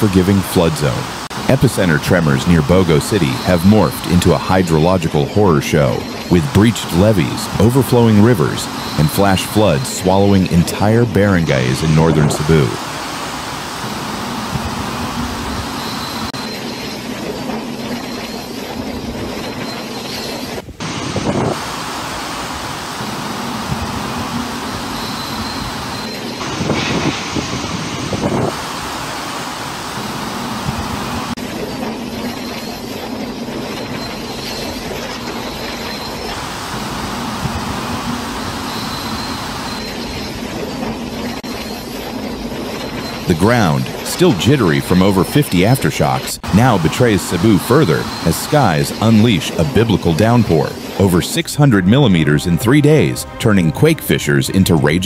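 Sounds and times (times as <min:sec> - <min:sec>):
rough surf: 0:00.0 - 0:16.4, 0:20.7 - 0:31.4, 0:45.9 - 0:51.5
storm wind and heavy rain: 0:00.0 - 0:52.2
strong wind: 0:11.5 - 0:16.4, 0:20.6 - 0:31.4.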